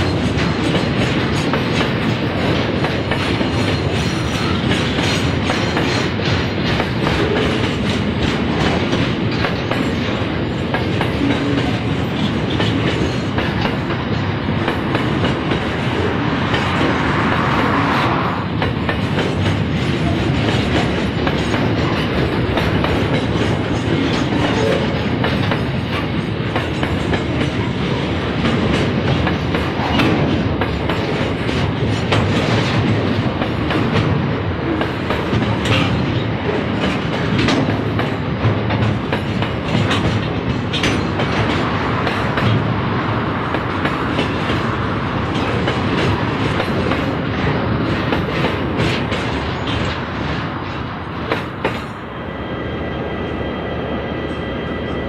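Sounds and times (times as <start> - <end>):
train wheels clicking over rail joints: 0.0 - 52.0
freight train rumble: 0.0 - 55.0.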